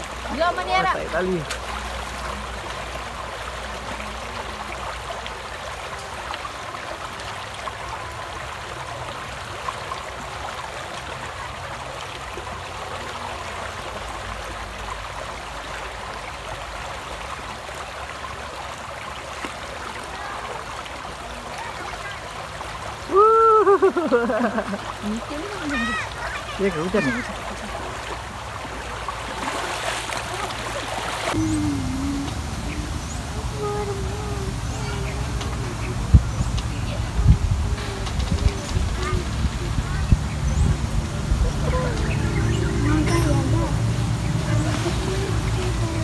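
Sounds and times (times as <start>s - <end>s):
river rushing over stones: 0.0s - 46.0s
child calling out: 25.5s - 27.4s.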